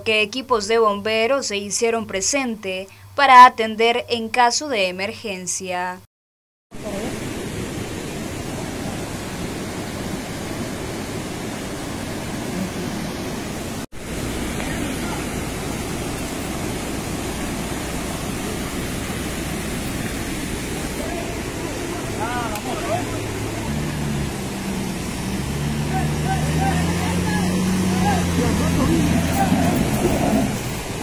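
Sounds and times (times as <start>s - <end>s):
rushing floodwater: 6.8s - 31.0s.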